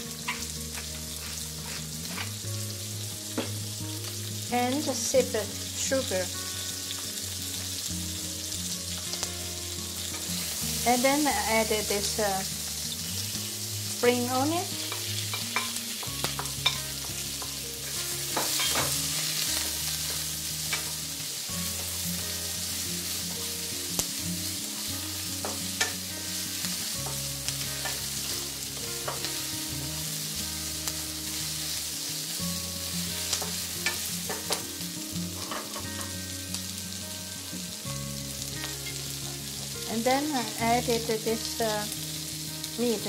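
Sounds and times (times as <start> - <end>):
vegetables sizzling in hot oil: 0.0 - 43.0
wooden spatula scraping a pan: 1.1 - 2.3.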